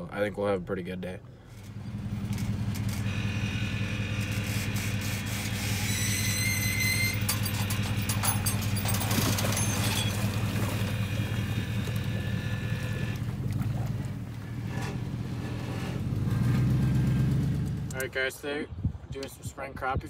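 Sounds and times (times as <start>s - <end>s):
vehicle engine idling: 0.6s - 18.2s
hull scraping over trailer: 1.4s - 17.9s
high squeal: 3.1s - 10.3s.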